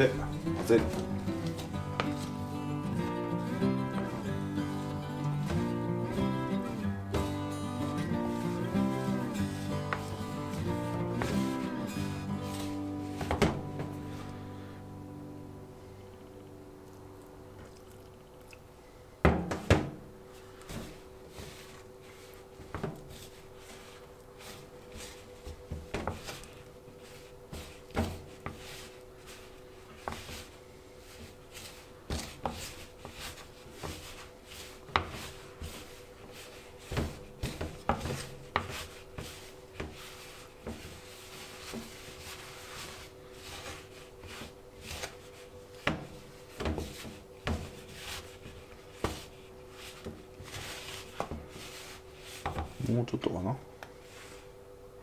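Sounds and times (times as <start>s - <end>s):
dough kneaded by hand: 0.0s - 14.8s, 15.4s - 55.0s
faint steady hum: 0.0s - 55.0s
heavy thuds: 12.2s - 14.4s.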